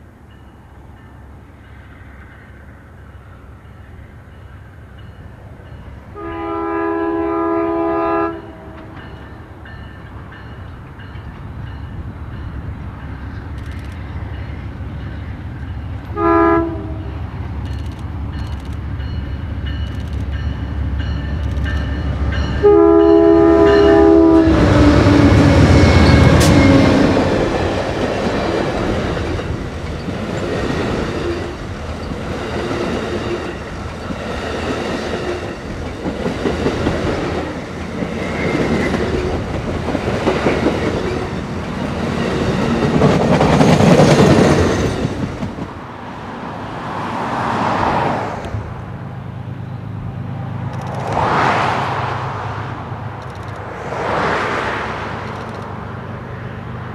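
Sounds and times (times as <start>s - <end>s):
diesel locomotive rumble: 0.0s - 46.8s
train horn blast: 6.2s - 9.0s, 16.1s - 17.3s, 22.4s - 27.3s
train wheels clacking: 24.6s - 45.8s.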